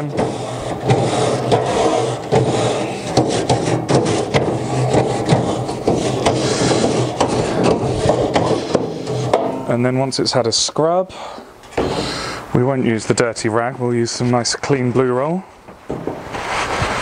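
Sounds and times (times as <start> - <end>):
brush scrubbing metal grill grate: 0.0 - 9.7.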